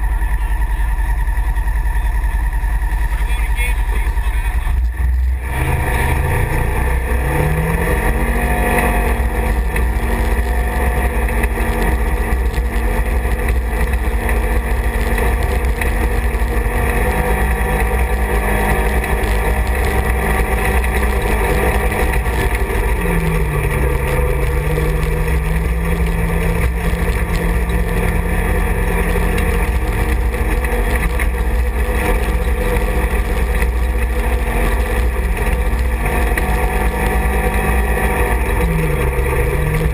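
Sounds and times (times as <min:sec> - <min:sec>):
heavy low rumble: 0:00.0 - 0:39.9
utility vehicle engine running: 0:00.0 - 0:39.9.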